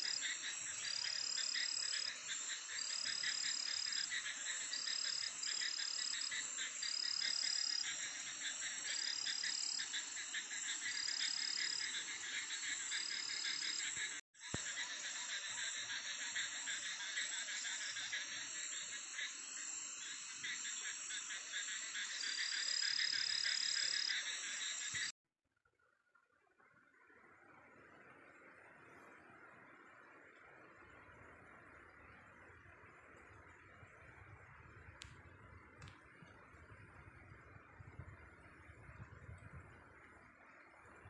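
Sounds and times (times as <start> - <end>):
frogs calling: 0.0 - 25.1
insects trilling: 0.0 - 25.1.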